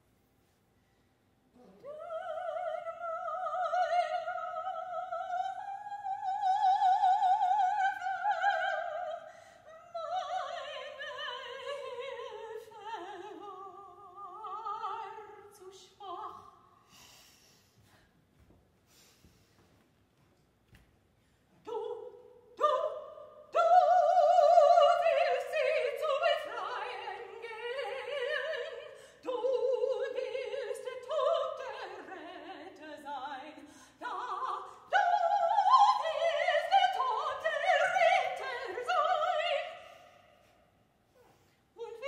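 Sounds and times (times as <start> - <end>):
woman singing operatically: 1.6 - 16.5, 21.7 - 39.9, 41.8 - 42.0.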